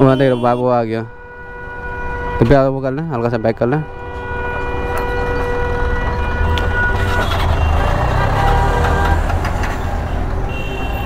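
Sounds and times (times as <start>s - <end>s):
vehicle engine rumbling: 3.1s - 11.0s.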